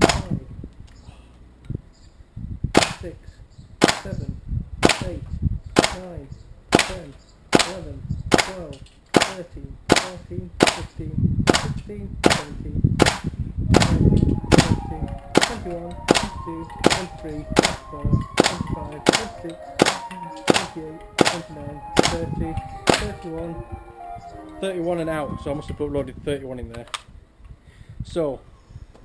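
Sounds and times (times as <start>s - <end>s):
airsoft rifle firing single shots: 0.0s - 0.3s, 3.8s - 4.2s, 5.8s - 6.0s, 6.7s - 10.9s, 11.5s - 14.8s, 15.4s - 17.8s, 18.4s - 21.4s.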